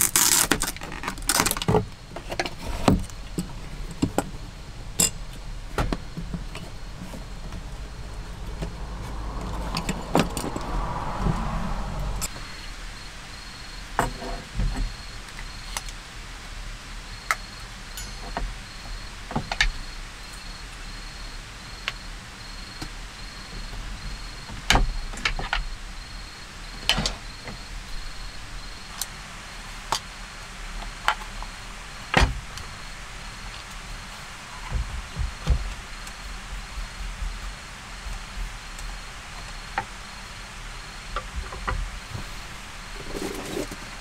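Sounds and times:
gas stove metal parts clicking: 0:18.0 - 0:18.4.

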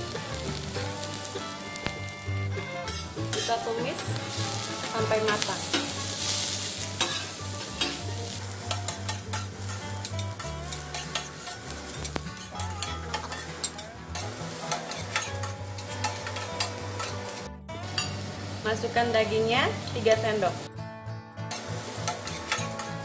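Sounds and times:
vegetables sizzling on griddle: 0:00.0 - 0:20.7, 0:21.5 - 0:23.0
metal spatulas scraping and clicking: 0:07.0 - 0:08.0, 0:08.7 - 0:17.3, 0:21.5 - 0:23.0.

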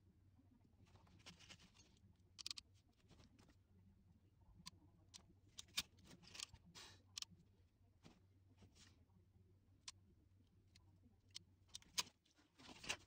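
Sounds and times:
low steady hum: 0:00.0 - 0:13.0
clicks and rustles of wires: 0:00.8 - 0:03.6, 0:04.6 - 0:07.4, 0:10.7 - 0:13.0.

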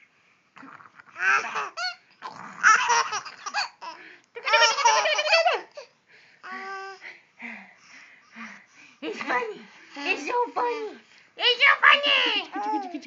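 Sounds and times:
baby giggling: 0:01.2 - 0:02.0, 0:02.6 - 0:07.0, 0:12.3 - 0:13.0.

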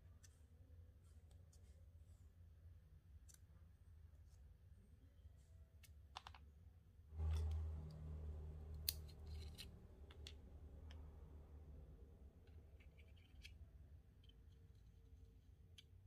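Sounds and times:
low rumble: 0:07.1 - 0:13.3.

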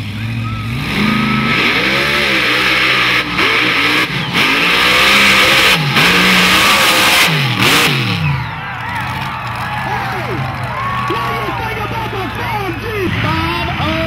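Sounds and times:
supercharged engine revving: 0:00.0 - 0:08.5.

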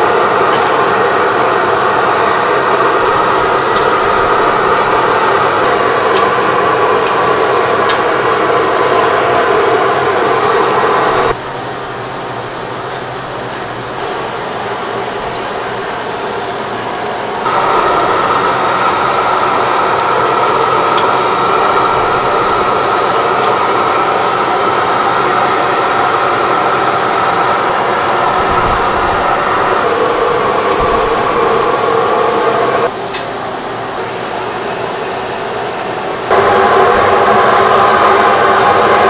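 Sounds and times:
fire roaring: 0:00.0 - 0:11.4, 0:17.3 - 0:32.9, 0:36.2 - 0:39.0
room hum: 0:00.0 - 0:39.0.

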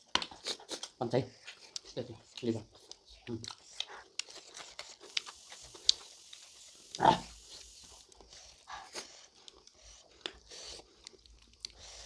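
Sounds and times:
small clicks and mouth noises: 0:00.0 - 0:12.0
breathy nose noise: 0:03.6 - 0:11.0.

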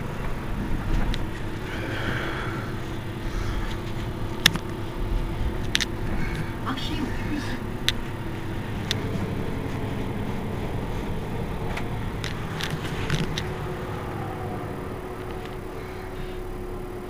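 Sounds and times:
bus engine idling: 0:00.0 - 0:17.0.

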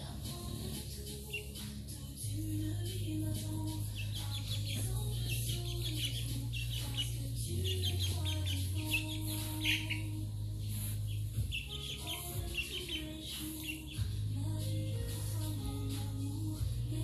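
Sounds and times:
background music with low notes: 0:00.0 - 0:17.0
young chickens clucking and peeping: 0:03.9 - 0:10.1.

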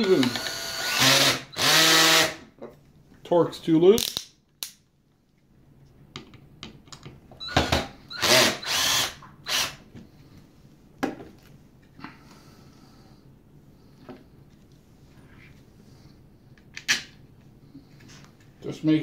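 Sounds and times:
cordless drill driving screw: 0:00.0 - 0:02.4, 0:07.4 - 0:09.8.

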